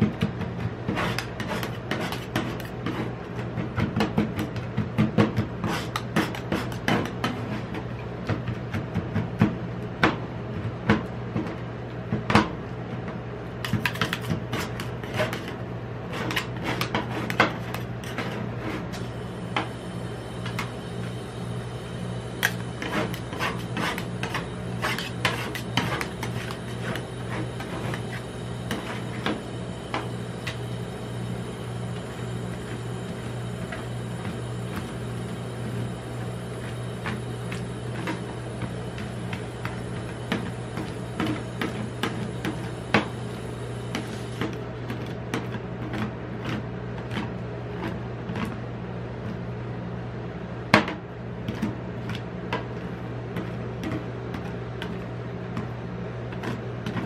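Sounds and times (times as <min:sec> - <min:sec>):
steady low hum: 0:00.0 - 0:57.0
spatulas scraping metal plate: 0:00.8 - 0:03.2, 0:13.6 - 0:19.0, 0:22.4 - 0:29.4.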